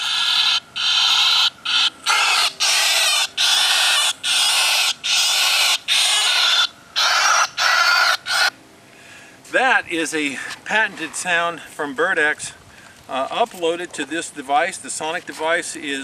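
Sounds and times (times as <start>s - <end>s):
starling screeches through speaker: 0.0s - 8.5s.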